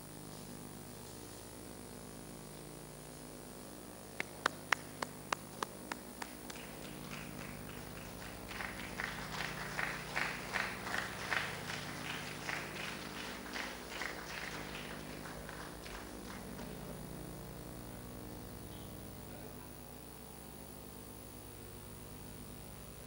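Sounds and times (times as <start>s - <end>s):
hands clapping: 4.2s - 17.0s.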